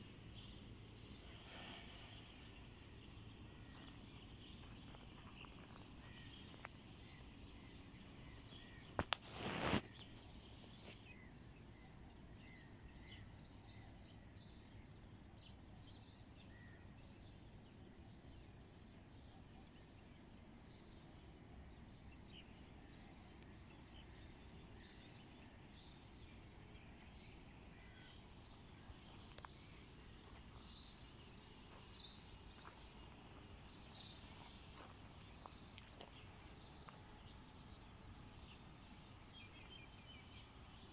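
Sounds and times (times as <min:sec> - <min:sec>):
small birds chirping: 0:00.0 - 0:40.9.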